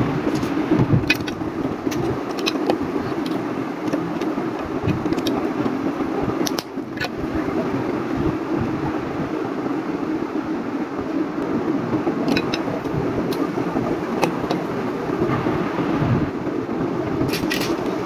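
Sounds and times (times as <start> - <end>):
steady background drone: 0.0 - 18.0
plastic bricks clicking: 0.3 - 5.4, 6.4 - 7.2, 12.3 - 12.6.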